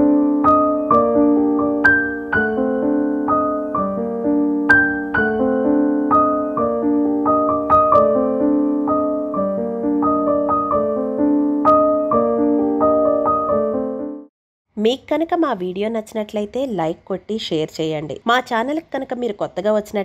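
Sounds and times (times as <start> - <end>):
piano music: 0.0 - 14.3.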